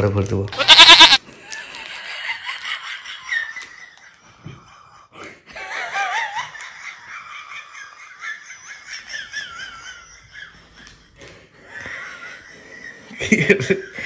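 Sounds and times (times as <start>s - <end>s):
woman laughing and giggling: 5.5s - 10.9s.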